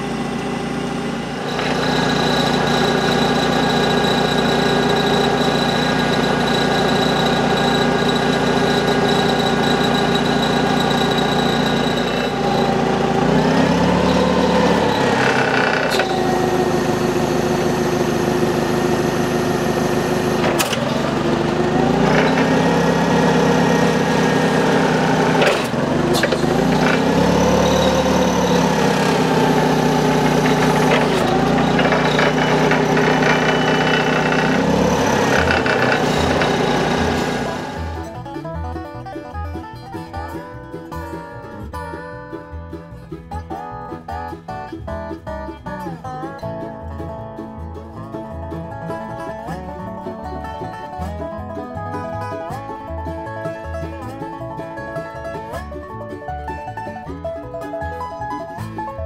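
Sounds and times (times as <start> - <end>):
forklift engine idling and revving: 0.0 - 57.9
sharp clunks: 20.3 - 21.2, 25.2 - 38.0.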